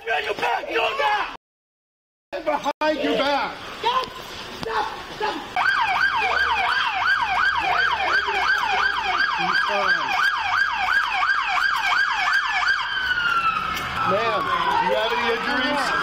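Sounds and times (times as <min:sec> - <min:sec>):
police siren yelping: 0:05.6 - 0:16.0.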